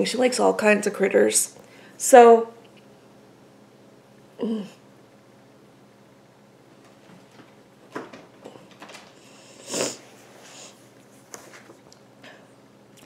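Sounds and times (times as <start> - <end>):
person sniffing: 9.4 - 10.8.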